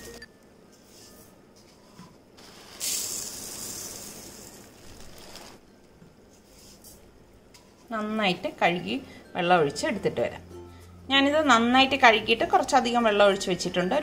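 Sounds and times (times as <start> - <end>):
rice grains pouring into pot: 2.4 - 5.6.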